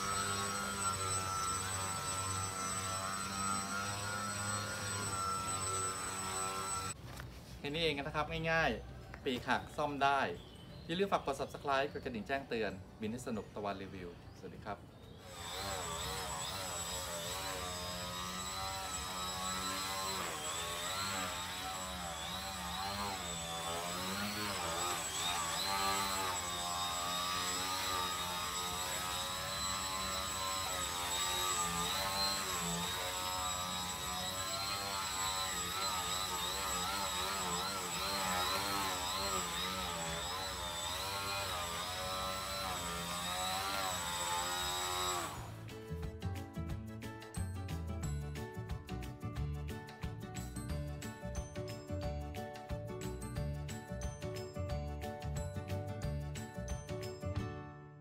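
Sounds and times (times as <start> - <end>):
model plane motor and propeller buzzing: 0.0 - 7.0, 15.1 - 45.6
thin high whine: 0.0 - 8.4.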